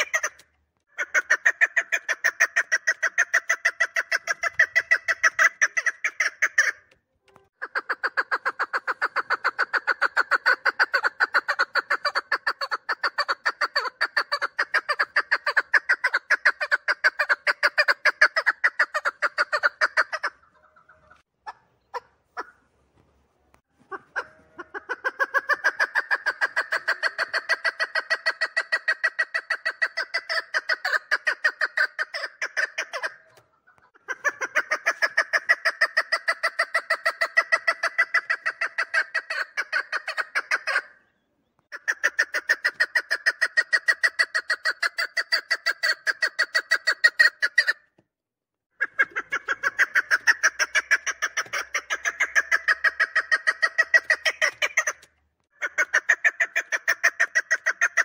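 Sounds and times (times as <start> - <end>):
partridge calling: 0.0 - 7.0, 7.6 - 22.7, 23.8 - 47.8, 48.8 - 58.0.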